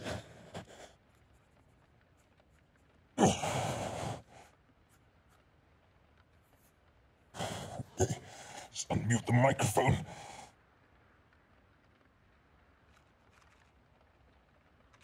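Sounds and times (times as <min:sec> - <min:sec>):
man sighing heavily: 0:03.2 - 0:04.4, 0:07.4 - 0:08.8, 0:09.6 - 0:10.4.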